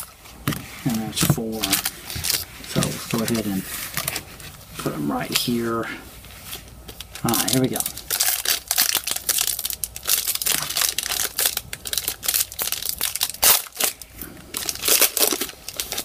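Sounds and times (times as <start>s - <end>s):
foil wrapper crinkling and tearing: 1.4s - 4.2s, 7.0s - 16.0s.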